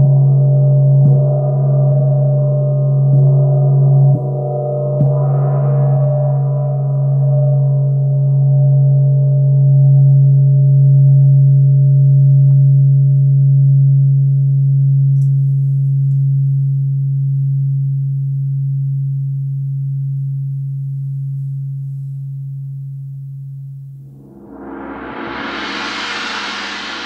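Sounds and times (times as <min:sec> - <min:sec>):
gong ringing: 0:00.3 - 0:08.5, 0:24.2 - 0:27.0.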